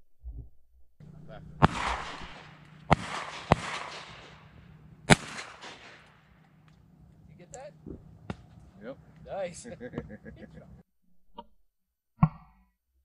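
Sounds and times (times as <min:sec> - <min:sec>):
shotgun shots with echo: 0:01.6 - 0:06.4.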